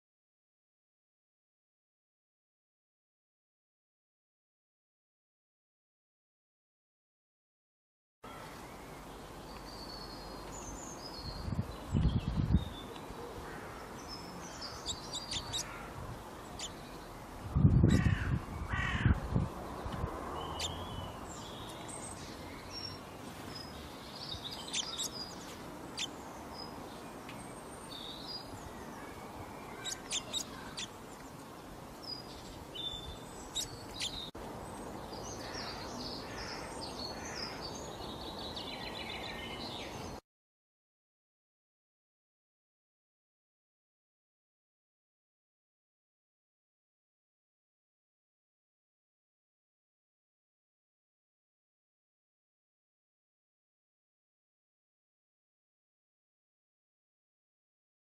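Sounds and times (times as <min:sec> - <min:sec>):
small birds chirping: 0:08.4 - 0:40.2
harsh bird calls: 0:12.9 - 0:17.1, 0:17.8 - 0:19.2, 0:20.4 - 0:26.7, 0:27.8 - 0:31.0, 0:32.0 - 0:34.3, 0:35.3 - 0:40.2.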